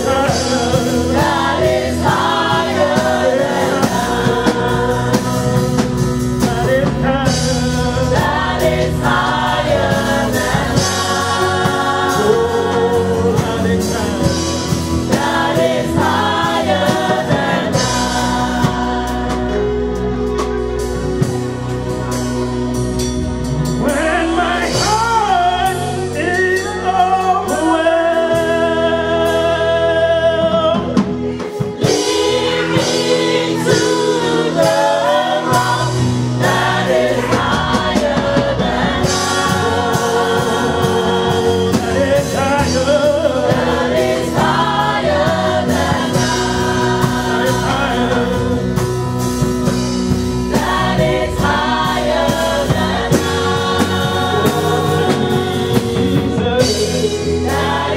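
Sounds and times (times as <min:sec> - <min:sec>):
man singing lead: 0:00.0 - 0:01.2, 0:06.3 - 0:08.4, 0:23.8 - 0:31.2, 0:40.2 - 0:43.6, 0:47.5 - 0:48.8, 0:54.4 - 0:57.6
women singing together: 0:00.0 - 0:05.9, 0:07.5 - 0:19.8, 0:31.8 - 0:48.7, 0:50.5 - 0:57.9
live band playing gospel: 0:00.0 - 0:57.9.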